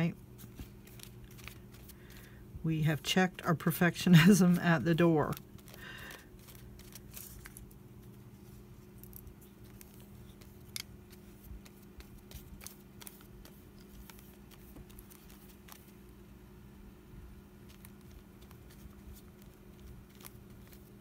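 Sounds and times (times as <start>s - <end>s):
electric fan humming: 0.0s - 21.0s
paintbrush and paper clicks: 0.4s - 2.3s, 5.3s - 16.0s, 17.6s - 21.0s.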